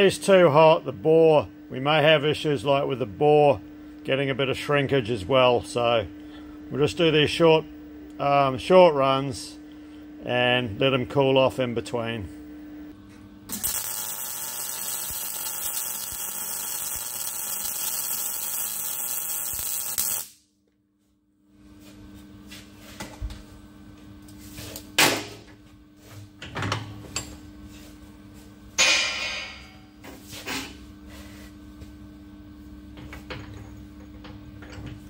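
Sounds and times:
steady low hum: 0:00.0 - 0:35.0
welding arc crackling: 0:13.5 - 0:20.4.

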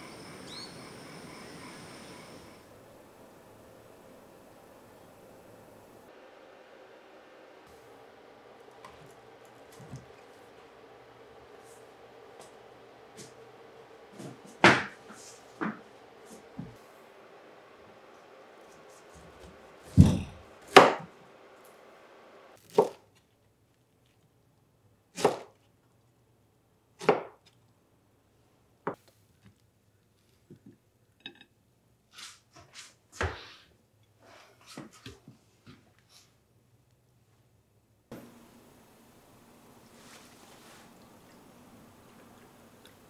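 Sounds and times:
knife chopping on wooden board: 0:19.9 - 0:21.0, 0:22.7 - 0:23.0, 0:25.2 - 0:25.5.

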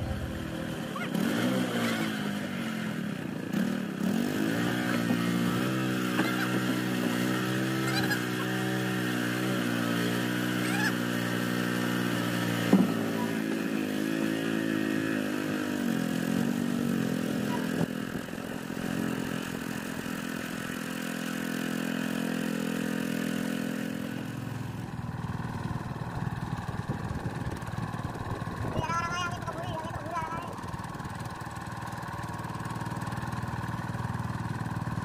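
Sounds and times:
small boat engine running: 0:00.0 - 0:35.0.

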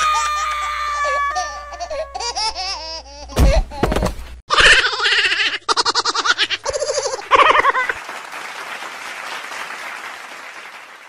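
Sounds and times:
cartoon characters laughing: 0:00.0 - 0:03.9, 0:04.5 - 0:08.0
applause: 0:07.4 - 0:11.0.

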